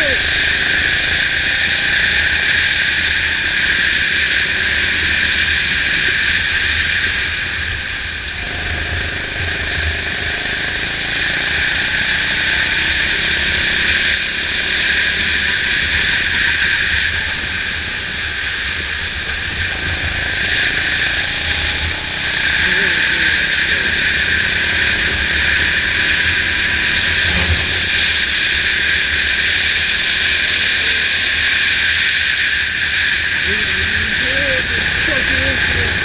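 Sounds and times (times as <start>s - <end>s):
kart engine running: 0.0s - 36.0s.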